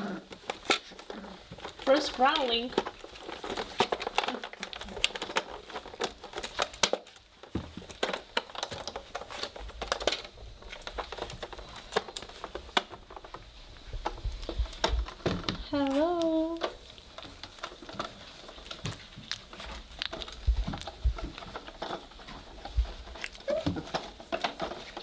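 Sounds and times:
puppies scrambling on blanket: 0.0s - 25.0s.

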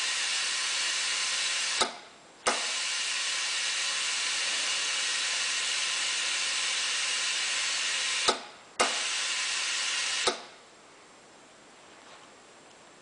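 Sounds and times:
tyre inflator click: 0.0s - 4.4s, 5.4s - 10.5s
air hissing from tyre: 0.0s - 10.5s.

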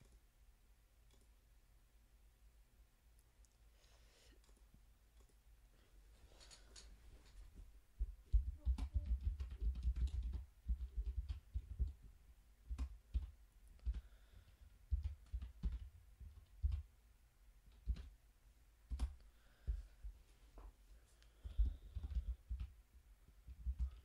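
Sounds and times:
keyboard typing: 8.3s - 12.0s, 12.7s - 16.9s, 17.7s - 18.2s, 21.4s - 22.8s, 23.5s - 24.0s.

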